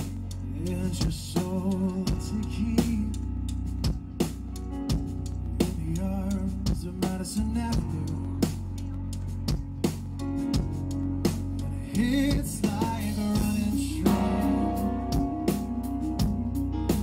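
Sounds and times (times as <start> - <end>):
drum and cymbal hits: 0.0 - 17.0
live rock band playing: 0.0 - 17.0
wavering lead guitar line: 10.3 - 17.0.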